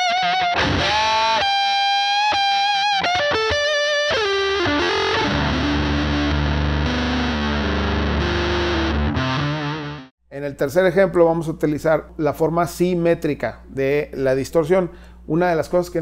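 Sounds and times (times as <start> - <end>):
distorted electric guitar: 0.0 - 10.1.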